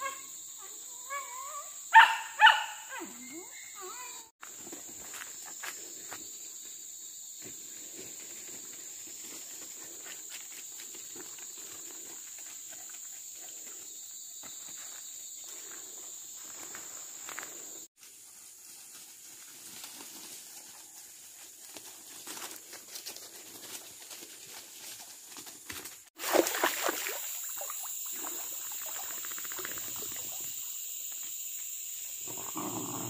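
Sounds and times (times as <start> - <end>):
drone of forest insects: 0.0 - 33.0
footsteps rustling through dry leaves: 18.0 - 26.2.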